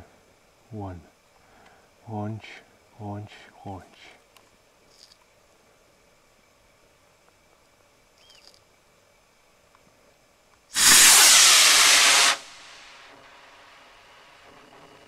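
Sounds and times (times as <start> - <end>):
faint hiss: 0.0 - 15.0
rocket motor hissing: 10.7 - 14.8.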